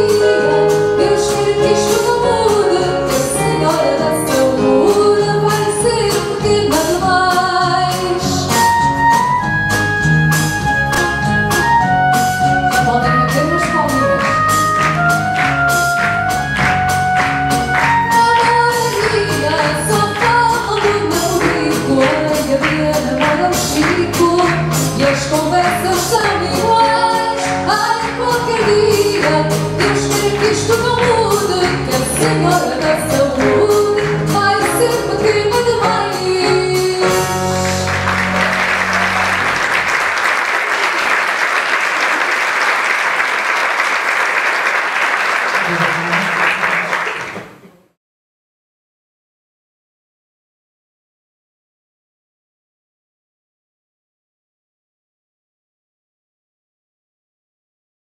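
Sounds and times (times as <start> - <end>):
woman singing: 0.0 - 8.7, 18.1 - 37.7
audience clapping: 13.2 - 34.9, 37.5 - 47.7.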